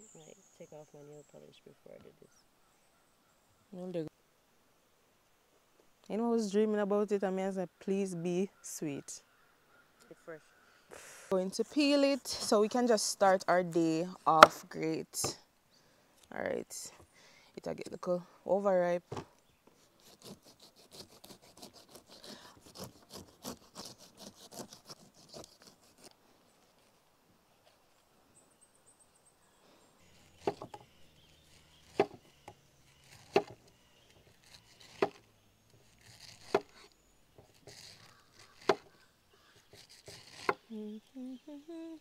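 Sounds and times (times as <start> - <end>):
knife scraping melon rind: 19.9 - 26.2, 30.1 - 40.7.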